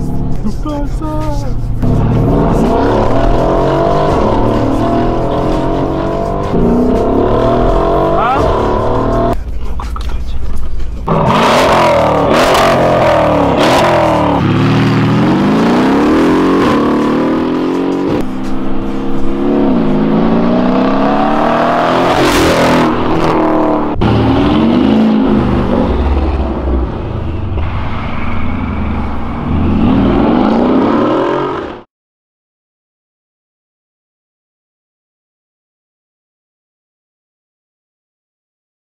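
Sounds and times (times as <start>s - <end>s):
car engine accelerating: 0.0s - 9.4s, 10.9s - 31.9s.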